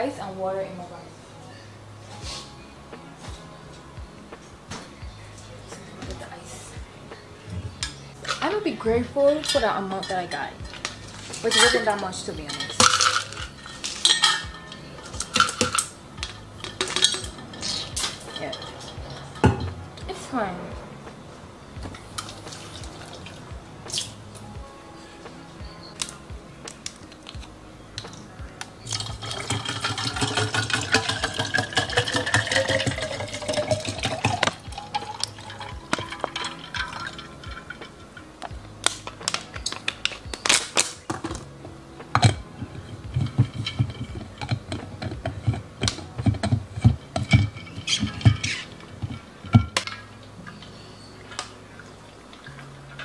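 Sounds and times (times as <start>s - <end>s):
water pouring into tumbler: 28.9s - 37.8s.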